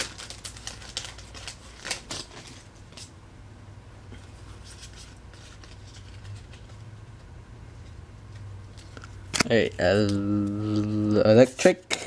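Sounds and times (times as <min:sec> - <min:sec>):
cards sliding and rustling: 0:04.2 - 0:06.9.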